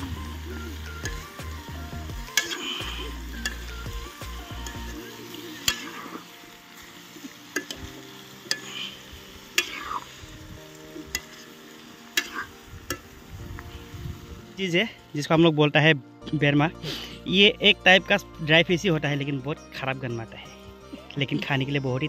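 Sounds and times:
meat sizzling in a pot: 0:00.0 - 0:15.5.

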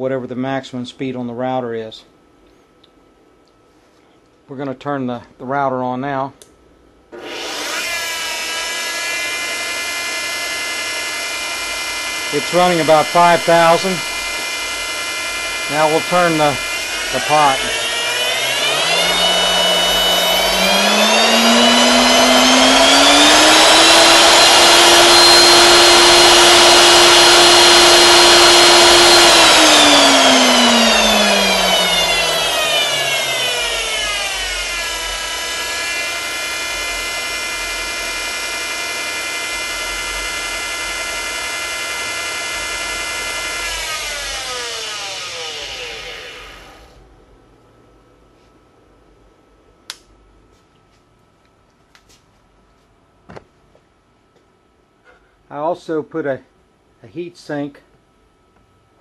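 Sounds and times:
router spindle motor whining: 0:07.2 - 0:47.0.

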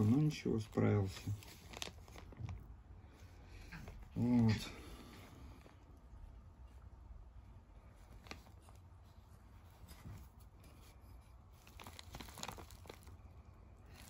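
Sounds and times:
plastic packaging rustling: 0:00.0 - 0:05.8, 0:07.9 - 0:14.0.

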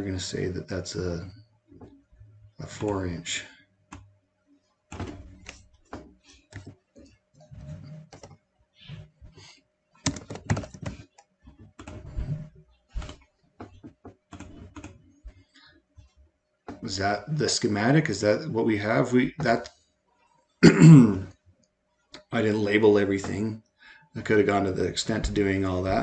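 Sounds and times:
typing on computer keyboard: 0:10.0 - 0:12.1, 0:13.0 - 0:15.0.

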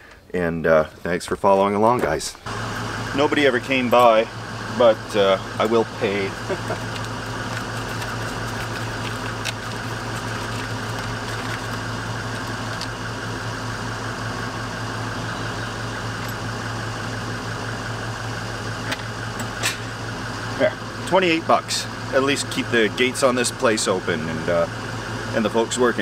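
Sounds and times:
engine idling: 0:02.4 - 0:26.0.

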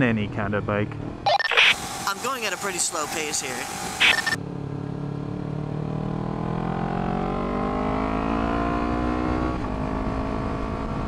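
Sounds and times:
motorcycle engine accelerating: 0:03.7 - 0:11.0.

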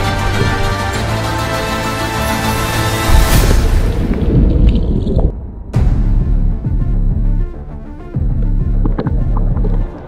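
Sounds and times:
cinematic music with deep bass: 0:00.0 - 0:10.0.

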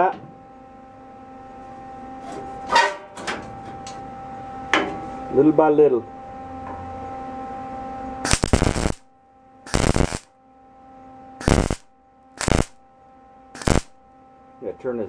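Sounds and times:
faint steady hum: 0:00.0 - 0:15.0
welder arc crackling: 0:08.3 - 0:09.1, 0:09.7 - 0:10.3, 0:11.4 - 0:12.8, 0:13.6 - 0:14.0.

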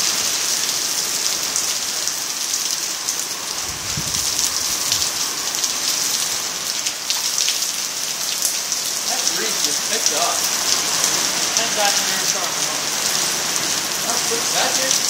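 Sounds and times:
heavy rain pouring: 0:00.0 - 0:15.0
water splashing in puddles: 0:00.0 - 0:15.0.

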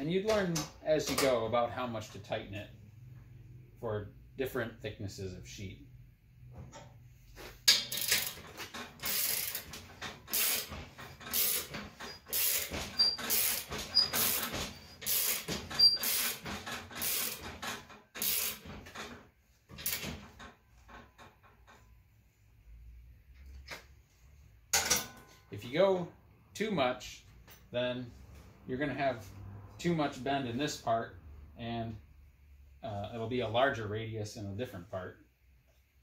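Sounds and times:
slip roller scraping metal sheet: 0:09.0 - 0:19.0.

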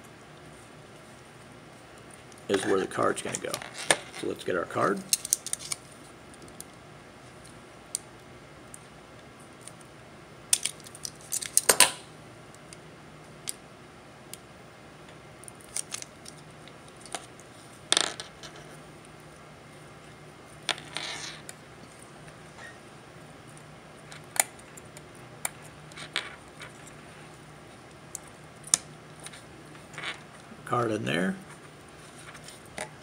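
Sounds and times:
small electronic parts clicking: 0:05.1 - 0:06.8.

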